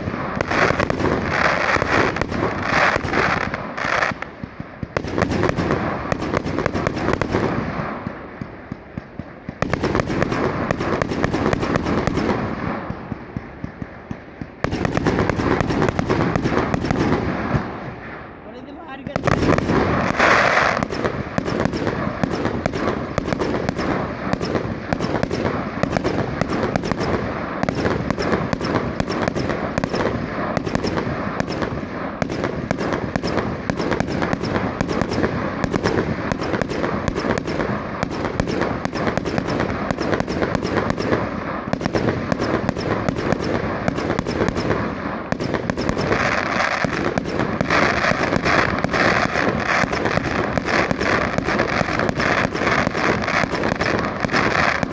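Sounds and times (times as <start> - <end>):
fireworks crackling bangs: 0.0 - 54.9.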